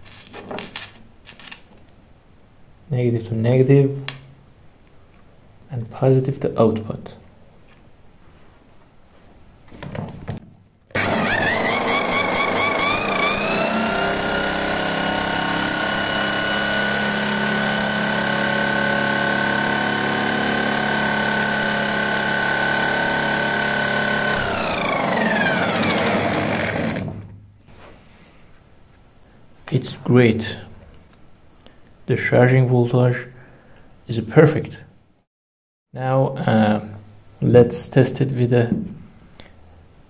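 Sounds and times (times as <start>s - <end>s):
electric motor whining: 10.9s - 27.3s.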